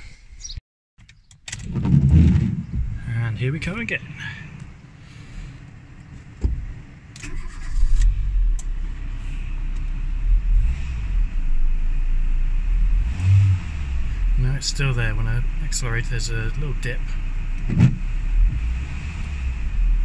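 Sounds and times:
car engine starting and idling: 1.2s - 20.0s
car engine revving: 6.6s - 20.0s.

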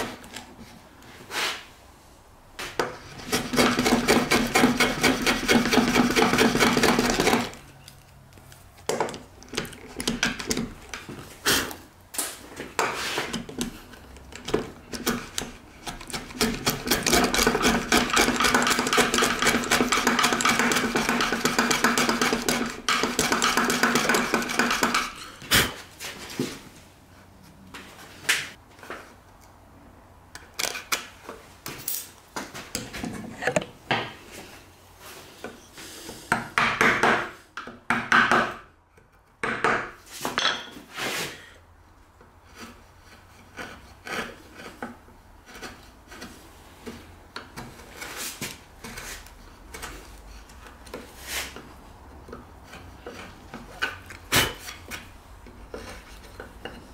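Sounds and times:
chisel scraping hardwood: 2.7s - 7.6s, 12.8s - 25.8s, 42.4s - 56.9s.

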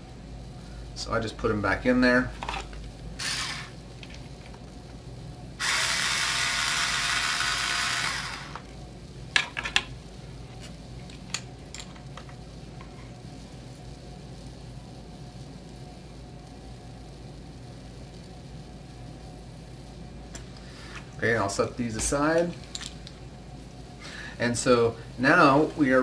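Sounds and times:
electric screwdriver running: 3.2s - 3.8s, 5.6s - 8.6s.

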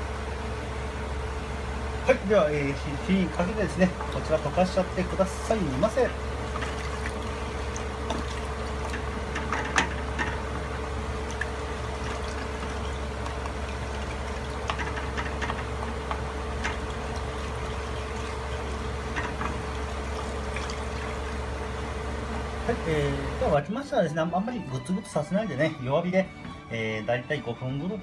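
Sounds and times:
steady hiss and hum: 0.0s - 28.0s
liquid sloshing in pot: 3.0s - 22.6s.

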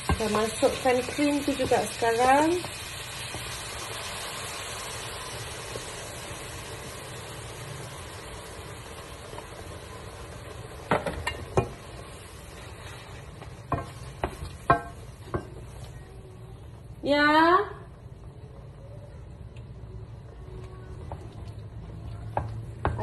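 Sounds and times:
food sizzling in a frying pan: 0.0s - 17.5s, 22.2s - 23.0s
wooden spatula knocking on pan: 13.7s - 15.6s, 22.3s - 23.0s.

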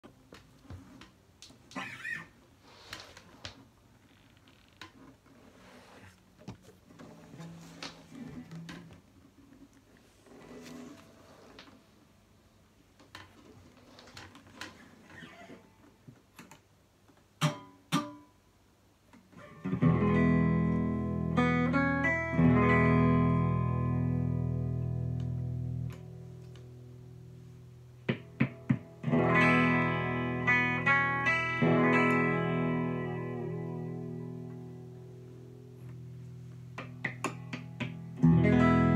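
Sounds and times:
electric guitar through amplifier: 19.4s - 38.9s.

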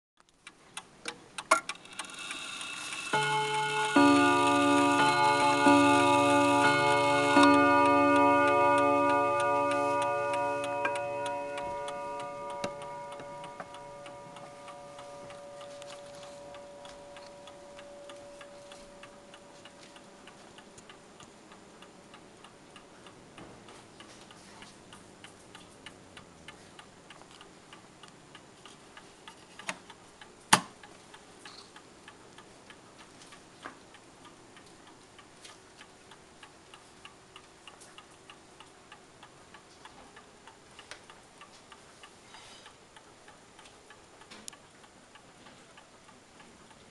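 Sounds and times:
clock ticking: 0.4s - 46.9s
clock chime on rod gongs: 3.0s - 20.0s.

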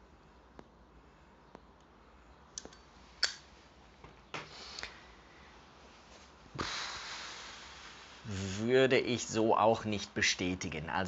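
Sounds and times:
breathy puff: 6.5s - 8.3s
breath blown out: 6.6s - 8.5s.

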